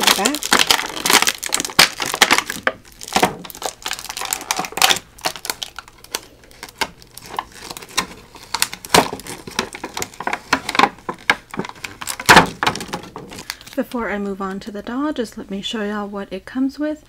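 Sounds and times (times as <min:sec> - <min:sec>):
plastic packaging crinkling: 0:00.0 - 0:14.0.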